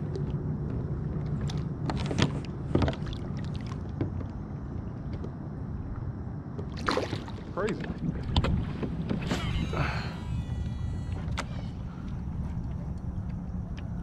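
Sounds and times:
low steady hum: 0:00.0 - 0:14.0
water splashing around fish: 0:06.7 - 0:09.3.

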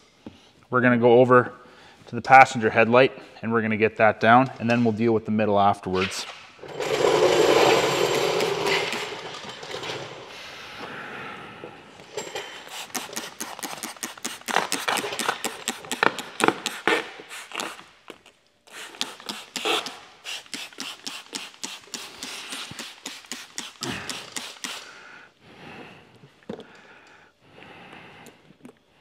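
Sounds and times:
trigger spray bottle spraying: 0:12.6 - 0:25.0.

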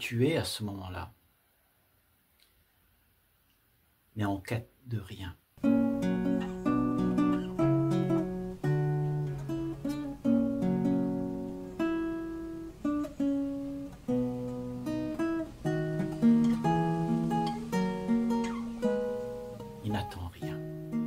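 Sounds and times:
acoustic guitar plucked: 0:05.6 - 0:21.0.

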